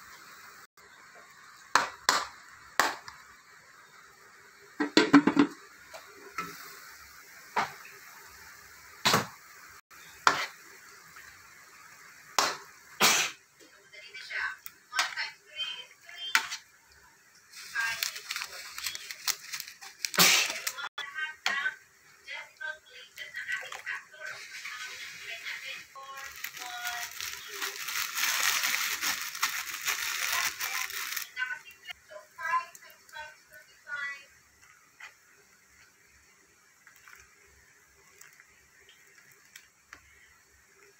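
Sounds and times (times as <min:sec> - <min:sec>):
meat sizzling in a pot: 0:00.0 - 0:40.9
plastic bag crinkling: 0:17.5 - 0:20.9, 0:23.5 - 0:31.4.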